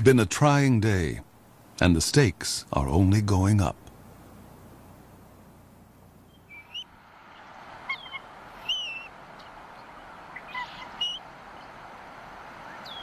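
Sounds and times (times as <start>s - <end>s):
faint steady hiss: 0.0s - 13.0s
eagles calling: 6.3s - 13.0s.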